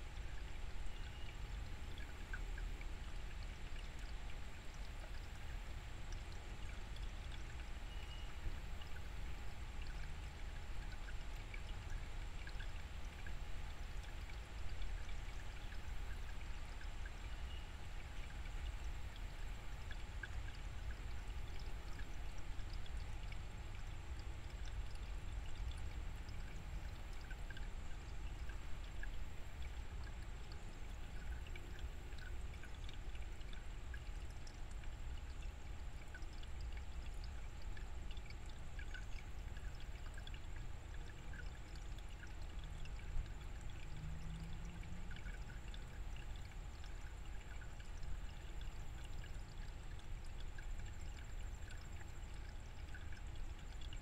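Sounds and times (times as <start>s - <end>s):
stream running over rocks: 23.6s - 54.0s.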